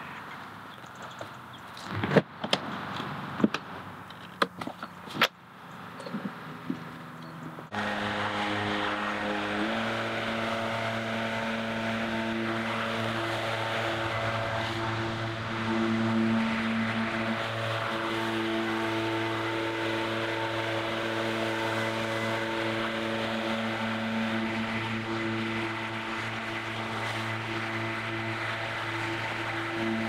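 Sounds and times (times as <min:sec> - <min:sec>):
leaf blower engine running: 0:07.7 - 0:30.0.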